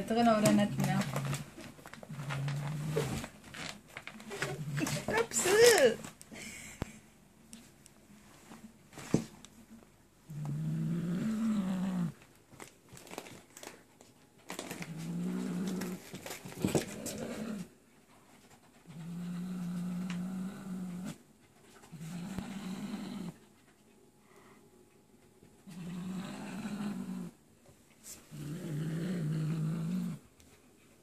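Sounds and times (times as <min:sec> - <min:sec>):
plastic bag crinkling: 0:00.1 - 0:06.2, 0:12.2 - 0:17.3
cat growling low: 0:00.8 - 0:03.4, 0:04.2 - 0:05.2, 0:10.3 - 0:12.2, 0:14.7 - 0:16.2, 0:16.8 - 0:17.8, 0:18.9 - 0:21.2, 0:21.8 - 0:23.4, 0:25.6 - 0:27.4, 0:28.3 - 0:30.3.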